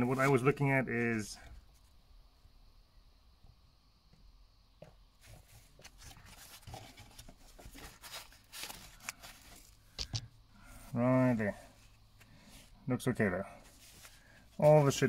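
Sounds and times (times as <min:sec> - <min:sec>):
faint rustling of handling: 0:03.4 - 0:15.0.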